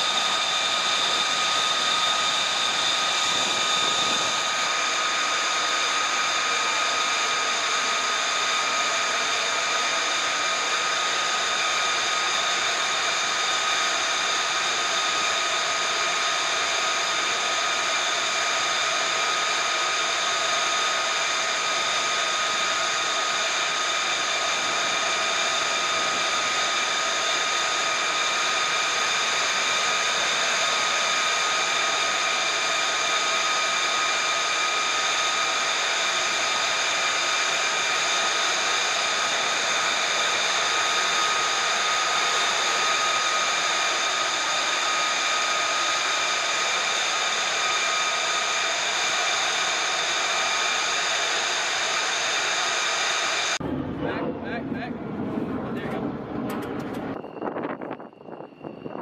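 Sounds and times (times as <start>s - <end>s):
jet engine idling: 0.0s - 59.0s.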